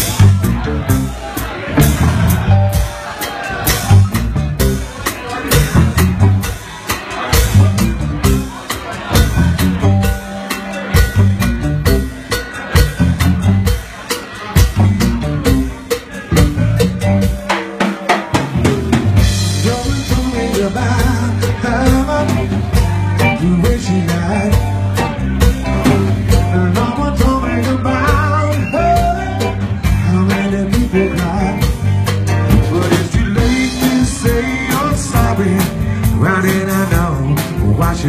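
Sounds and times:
bass guitar: 0.0s - 38.0s
drum kit beat: 0.0s - 38.0s
electric guitar: 0.0s - 38.0s
wavering melodic lead line: 18.4s - 38.0s.

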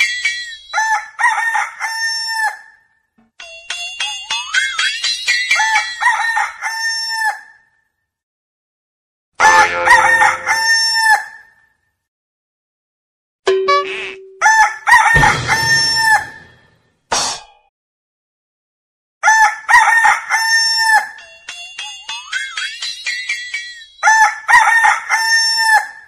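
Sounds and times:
rooster crowing: 0.8s - 2.6s, 9.7s - 11.4s, 14.4s - 16.5s, 24.0s - 26.0s.

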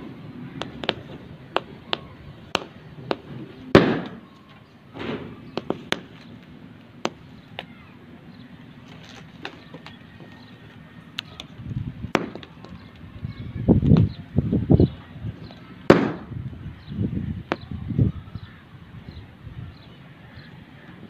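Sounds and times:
firecracker bangs: 2.5s - 4.2s, 12.1s - 12.5s, 15.9s - 16.4s.

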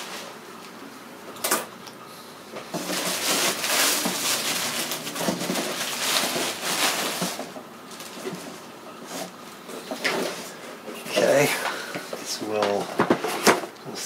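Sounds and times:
plastic and cardboard crinkling: 2.6s - 13.7s.

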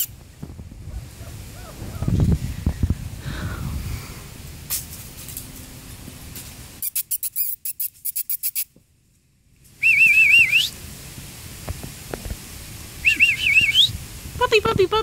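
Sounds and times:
person whistling warbling call: 9.8s - 10.7s, 13.0s - 13.9s.

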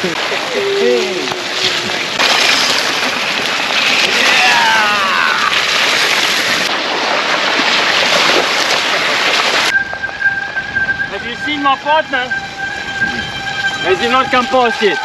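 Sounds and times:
bike tyres splashing through mud: 0.0s - 9.8s
rain: 0.0s - 11.4s
brief falling high tone: 9.7s - 15.0s.

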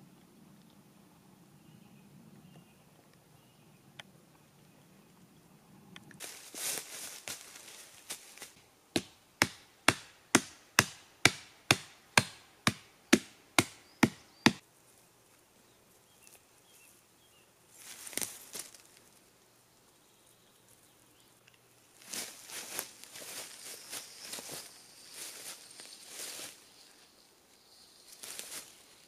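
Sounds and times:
rustling in dry leaves: 6.2s - 8.7s, 17.6s - 19.4s, 21.8s - 29.0s
hatchet knocking on wooden stake: 9.0s - 14.6s.

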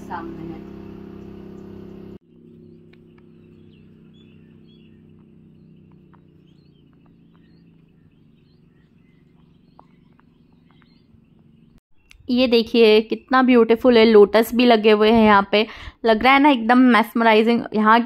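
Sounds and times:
loud hum: 0.0s - 10.3s
faint low hum: 0.0s - 13.3s
birds chirping: 0.0s - 14.9s.

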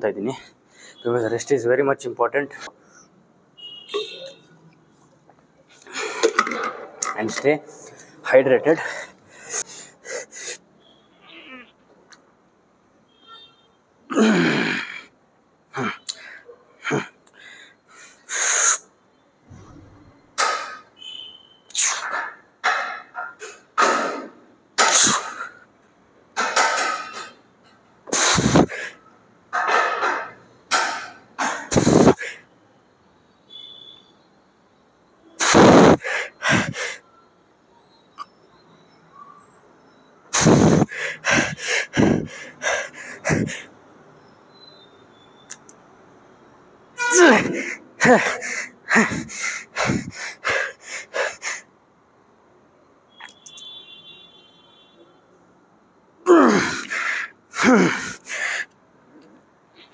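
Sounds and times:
man puffing and gasping: 28.1s - 29.0s, 31.7s - 32.4s, 35.4s - 37.0s, 40.4s - 43.7s, 47.1s - 51.7s, 56.3s - 58.7s
forceful exhalations of effort: 35.4s - 37.0s, 40.4s - 43.7s, 47.1s - 51.7s, 56.3s - 58.7s.

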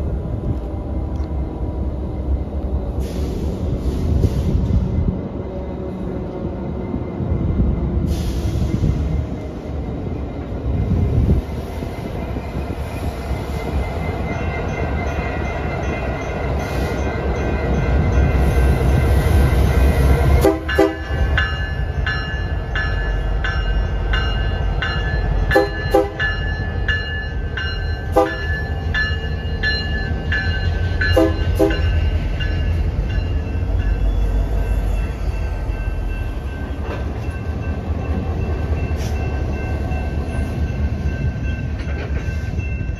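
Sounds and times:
diesel locomotive engine rumble: 0.0s - 42.9s
locomotive horn: 20.4s - 21.1s, 25.5s - 26.2s, 28.1s - 28.5s, 31.1s - 31.8s.

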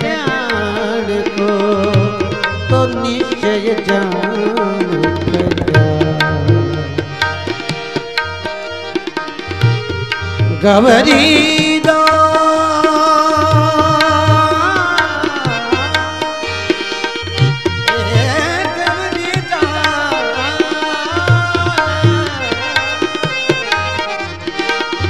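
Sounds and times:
instrumental melody line: 0.0s - 25.0s
hand drum beating: 4.0s - 12.1s.

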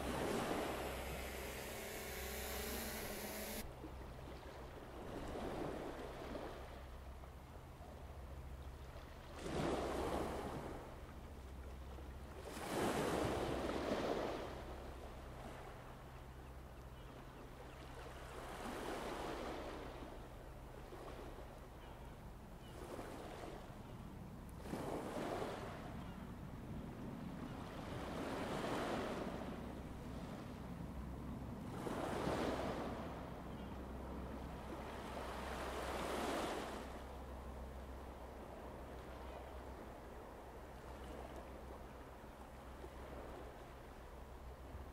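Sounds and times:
sea waves washing in: 0.0s - 2.4s
steady low hum: 0.0s - 5.1s.

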